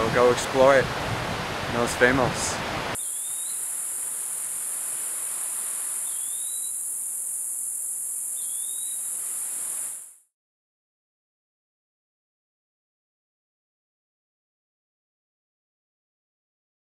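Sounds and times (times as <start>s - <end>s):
bird rising whistle: 3.0s - 3.7s, 5.9s - 7.6s, 8.2s - 10.0s
insects droning: 3.0s - 10.2s.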